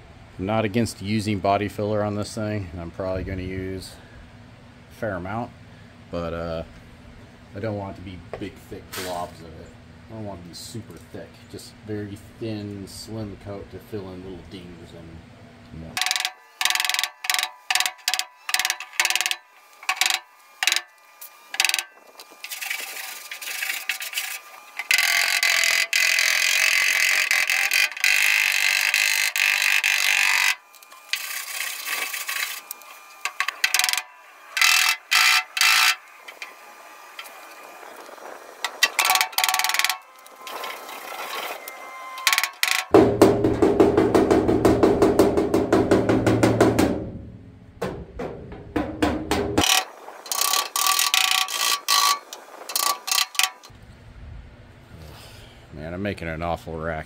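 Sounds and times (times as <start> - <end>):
rapid rattle of strikes: 42.3 - 50.7
knocks on sheet metal: 43.0 - 49.7
steady hissing noise: 48.2 - 57.0.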